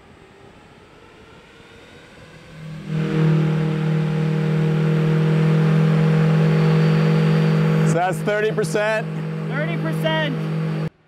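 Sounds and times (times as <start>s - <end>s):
electric ducted fan humming: 2.6s - 10.9s.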